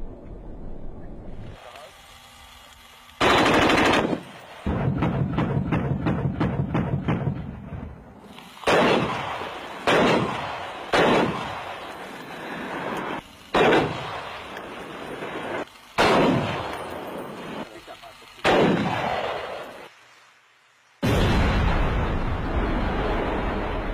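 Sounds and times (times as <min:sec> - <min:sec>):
rapid automatic gunfire burst: 0:03.2 - 0:07.4, 0:08.6 - 0:11.8, 0:13.5 - 0:16.7, 0:18.4 - 0:19.6.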